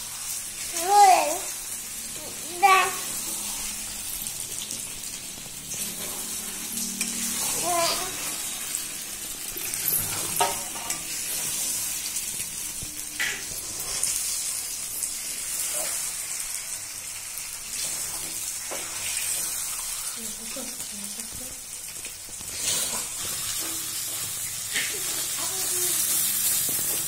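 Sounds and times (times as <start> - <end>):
chicken frying in hot oil: 0.0 - 27.0
metal spatula scraping a pan: 5.7 - 8.8, 22.5 - 27.0.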